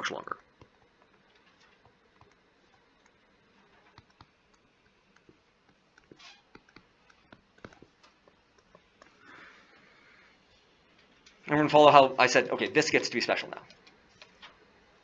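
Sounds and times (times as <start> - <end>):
soft hiss: 0.0 - 15.0
stylus tapping on tablet screen: 0.5 - 9.2.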